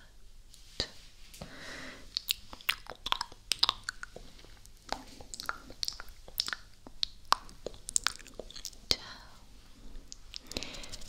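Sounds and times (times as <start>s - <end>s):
wet lip and tongue clicks: 2.1s - 8.8s.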